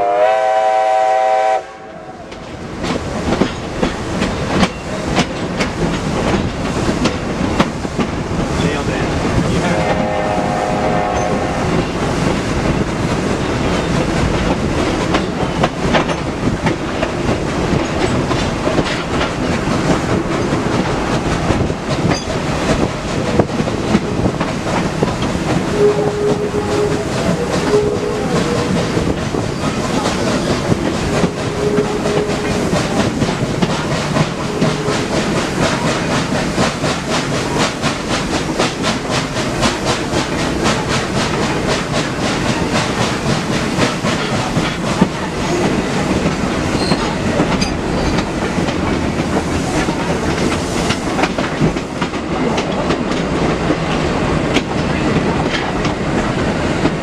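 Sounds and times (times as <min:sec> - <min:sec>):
steam whistle chord: 0:00.0 - 0:02.2, 0:09.8 - 0:11.6, 0:25.7 - 0:28.7
steam locomotive exhaust chuffing: 0:00.0 - 0:57.0
wheels clicking over rail joints: 0:02.3 - 0:09.6, 0:11.1 - 0:57.0.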